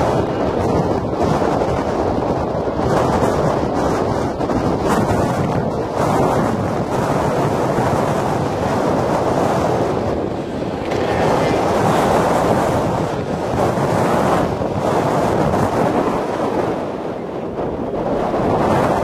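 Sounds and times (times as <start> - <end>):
wind buffeting microphone: 0.0 - 19.0
faint racing motorcycles: 8.4 - 15.3.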